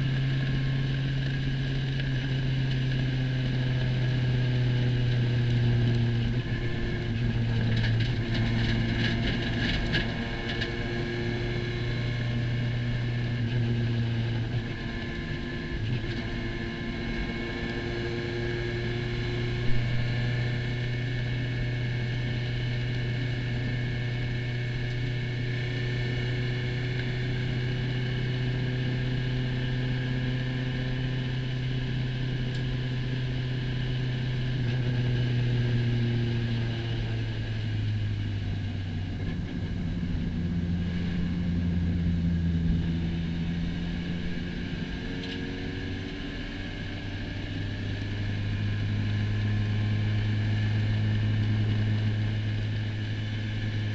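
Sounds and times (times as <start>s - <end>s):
race car engine running: 0.0s - 53.9s.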